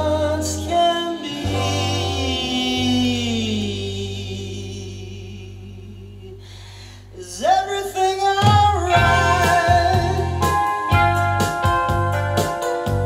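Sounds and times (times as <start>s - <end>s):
pop-rock music from speakers: 0.0s - 4.3s, 8.2s - 13.0s
drums: 0.0s - 4.8s, 7.7s - 13.0s
sung note swooping upward: 1.0s - 4.3s.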